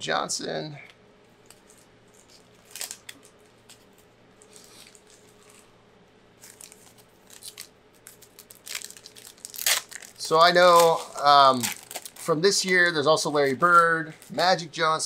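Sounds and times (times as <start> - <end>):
faint steady hum: 0.0 - 15.0
trading cards rustling and clicking: 6.4 - 14.5.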